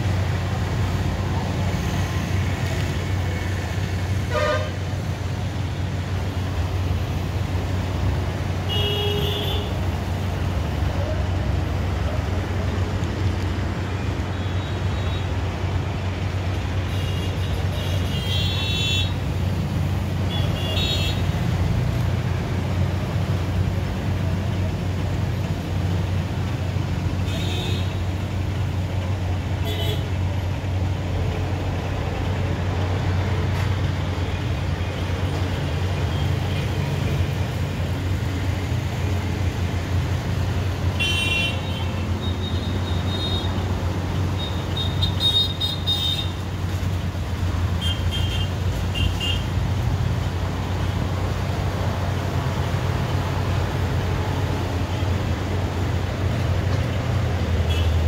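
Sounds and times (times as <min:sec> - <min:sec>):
traffic rumble: 0:00.0 - 0:58.0
vehicle horns honking: 0:04.3 - 0:04.8, 0:08.7 - 0:09.8, 0:41.0 - 0:43.5.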